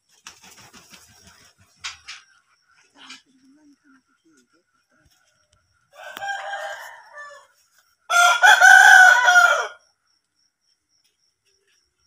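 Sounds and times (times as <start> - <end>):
rooster crowing: 5.9 - 9.9.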